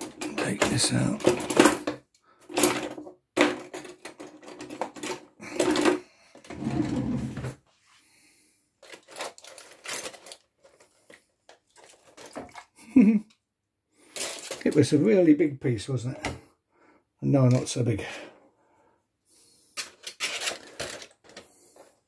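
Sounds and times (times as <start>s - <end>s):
aluminium foil crinkling: 8.8s - 12.5s, 14.0s - 14.8s, 19.8s - 21.8s.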